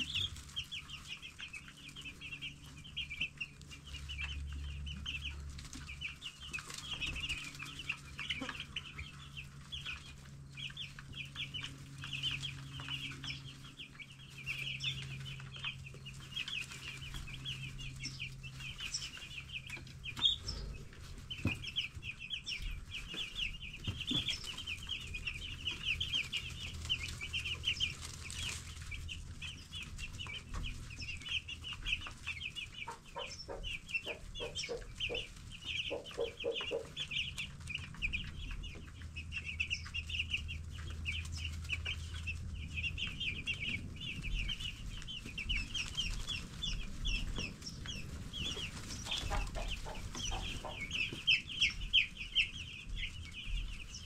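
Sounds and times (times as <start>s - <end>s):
chicks peeping: 0.0s - 54.0s.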